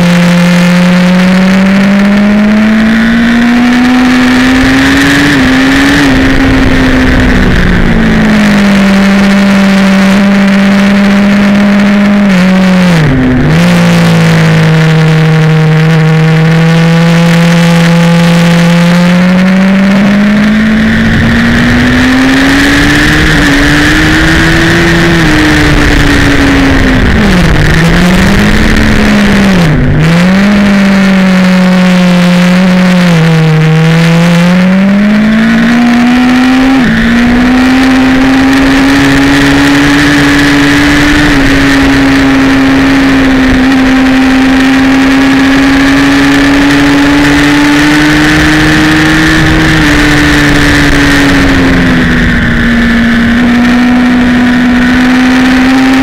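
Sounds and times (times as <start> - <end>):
motorcycle engine at speed: 0.0 - 56.0
wind rushing: 4.1 - 9.2, 19.6 - 31.2.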